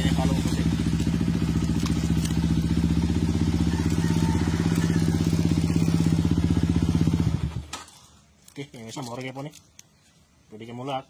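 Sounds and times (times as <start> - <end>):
motorcycle engine idling: 0.0 - 8.0.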